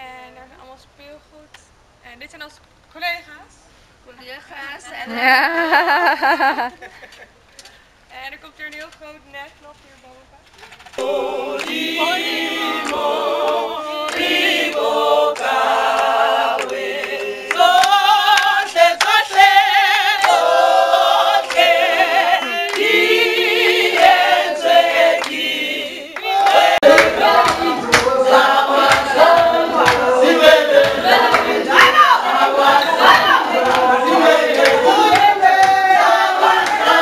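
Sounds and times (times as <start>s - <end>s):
group singing in harmony: 10.9s - 37.0s
hand clapping: 11.0s - 19.6s, 20.2s - 20.5s, 21.4s - 24.2s, 25.2s - 25.5s, 26.2s - 32.0s, 33.0s - 37.0s.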